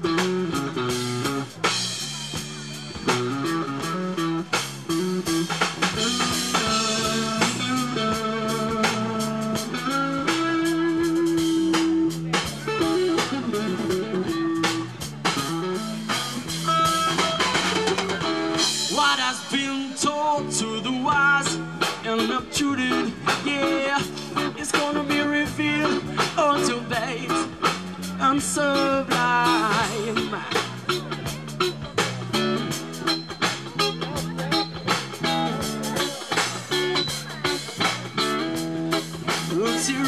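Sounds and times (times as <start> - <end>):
bass guitar: 0.0 - 40.0
drum kit: 0.0 - 40.0
electric guitar lead: 0.0 - 40.0.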